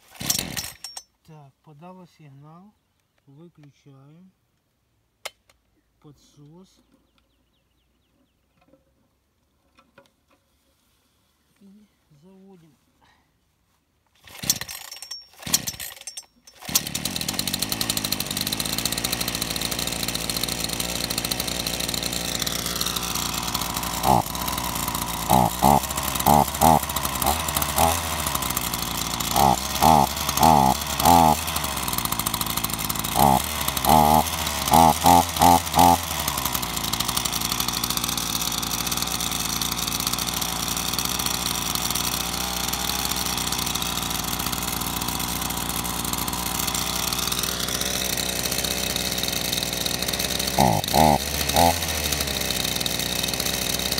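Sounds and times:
chainsaw running and revving: 0:00.0 - 0:00.9, 0:14.2 - 0:53.9
chainsaw pull cord: 0:00.0 - 0:01.2, 0:14.1 - 0:53.9.

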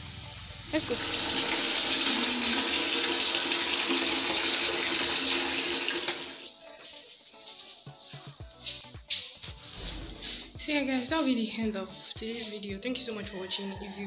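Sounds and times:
tap water splashing into bucket: 0:01.0 - 0:06.5.

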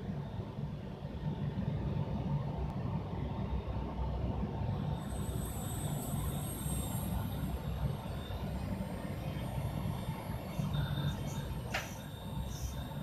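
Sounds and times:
thin high-pitched whine: 0:04.8 - 0:13.0.

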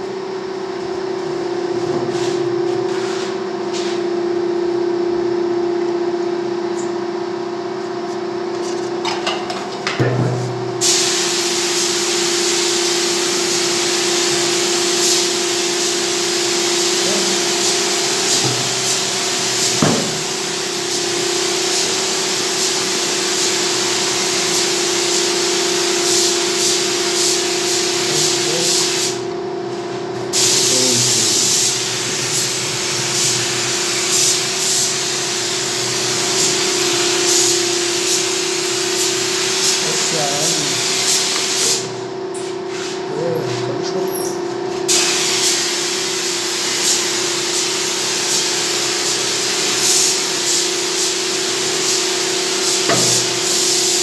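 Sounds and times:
spray gun hissing: 0:10.8 - 0:29.2, 0:30.3 - 0:41.9, 0:44.9 - 0:54.0.

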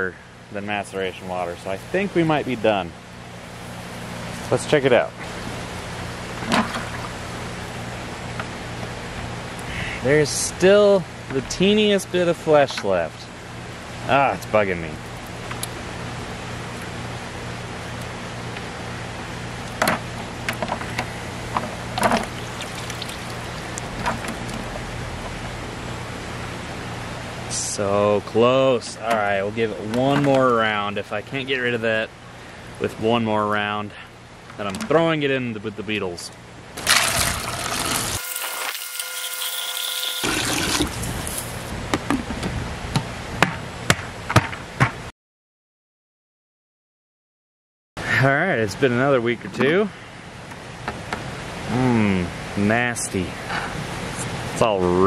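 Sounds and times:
steady low hum: 0:00.0 - 0:38.0
water sloshing in plastic bucket: 0:21.6 - 0:24.7, 0:36.8 - 0:38.2, 0:40.3 - 0:41.6.

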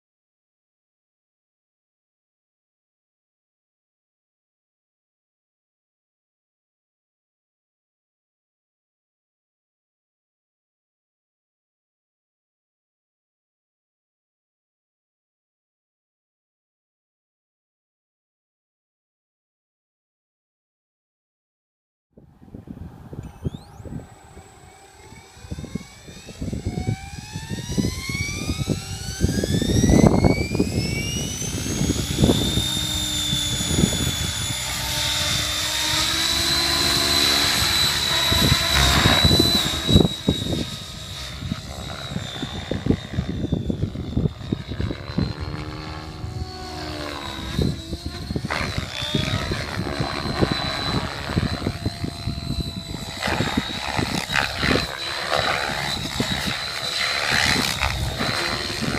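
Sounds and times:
electric motor whine: 0:22.6 - 0:58.9
rotor blade noise: 0:23.1 - 0:58.9.

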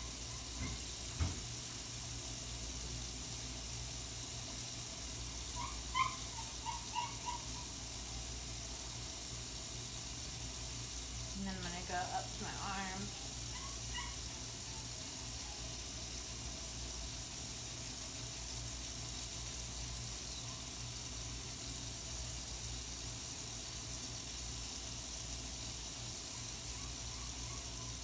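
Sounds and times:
tap water running into sink: 0:00.5 - 0:01.8.

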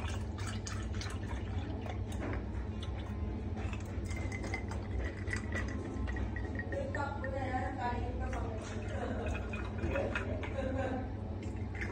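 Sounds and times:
milk pouring: 0:00.0 - 0:11.9
steady low hum: 0:00.0 - 0:11.9.

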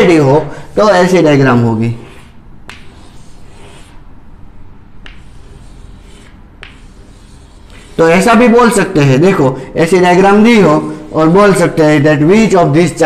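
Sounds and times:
chalk scratching on blackboard: 0:00.7 - 0:04.1, 0:05.0 - 0:08.5, 0:10.3 - 0:11.8
chalk tapping on board: 0:02.1 - 0:04.0, 0:05.0 - 0:08.0.

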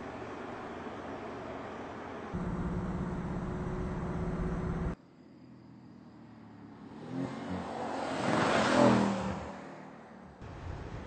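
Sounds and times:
steady engine drone: 0:00.0 - 0:05.0
car passing at speed: 0:06.8 - 0:10.2.

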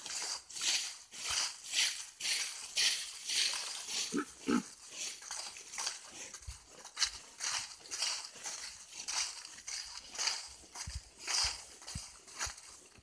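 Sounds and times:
footsteps through dry leaves: 0:00.0 - 0:13.0
person grunting: 0:04.2 - 0:04.7.

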